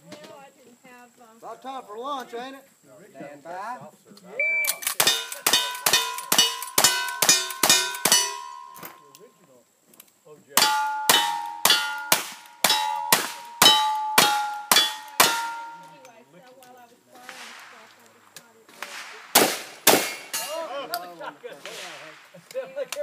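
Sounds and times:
rifle shots: 4.8s - 8.4s, 11.1s - 15.9s, 18.8s - 20.4s
steel target ringing: 5.0s - 9.1s, 10.6s - 16.1s.

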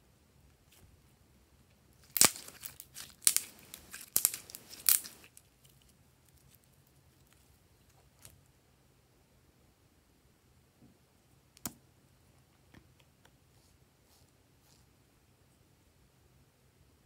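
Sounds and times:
slime crackling and tearing: 2.0s - 7.5s.

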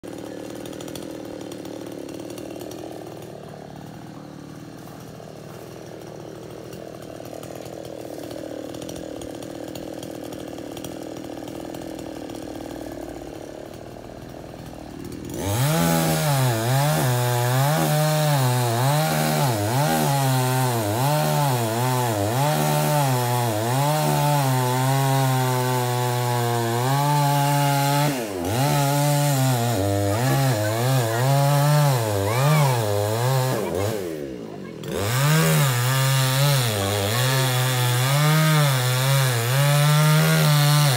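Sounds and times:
chainsaw cutting wood: 0.0s - 40.9s.

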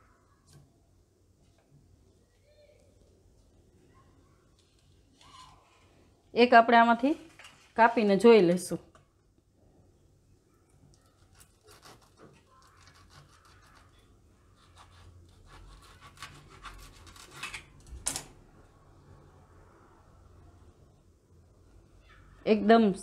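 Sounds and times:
sharp crack of crust: 10.9s - 14.0s
knife cutting crisp crust: 11.0s - 17.7s.

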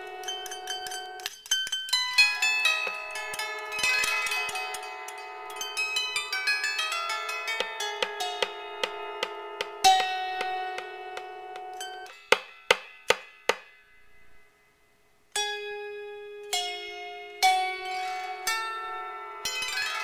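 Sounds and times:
harp plucked: 0.0s - 13.8s
sharp struck notes: 2.6s - 14.0s.

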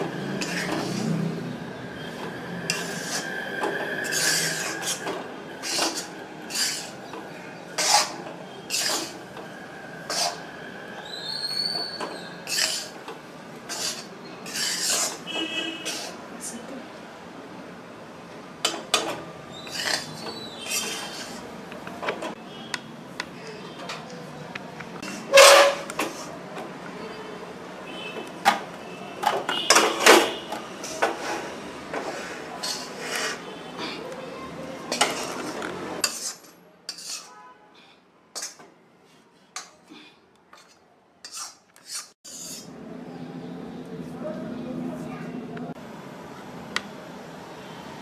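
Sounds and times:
metal spatula scraping iron pan: 0.4s - 1.2s, 2.7s - 3.4s, 4.0s - 7.0s, 7.7s - 9.2s, 10.0s - 10.5s, 11.7s - 13.0s, 13.7s - 16.2s, 19.6s - 21.5s, 25.0s - 26.3s, 29.7s - 34.0s, 34.9s - 37.4s, 40.6s - 42.7s.

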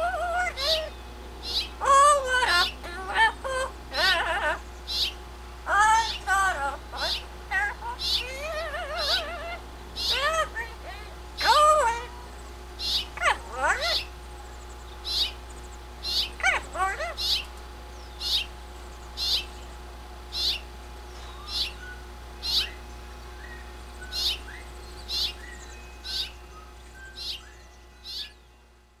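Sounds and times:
parrot chirping: 0.0s - 14.2s, 15.0s - 18.5s, 19.1s - 19.6s, 20.3s - 22.8s, 23.4s - 28.4s
parrot whistled call: 5.9s - 10.5s, 12.8s - 14.1s, 21.2s - 22.8s, 23.4s - 28.4s.

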